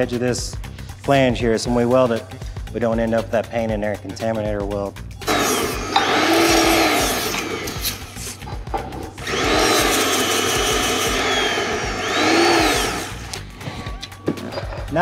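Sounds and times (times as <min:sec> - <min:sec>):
die grinder grinding metal: 0:05.2 - 0:08.5, 0:09.2 - 0:14.0.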